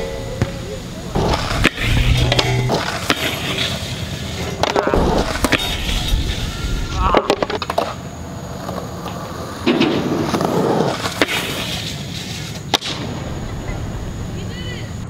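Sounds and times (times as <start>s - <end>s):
skateboard wheels clacking: 0.0s - 13.8s
skateboard scraping along rail: 1.0s - 13.8s
skateboard smacking down and rolling: 1.1s - 13.1s.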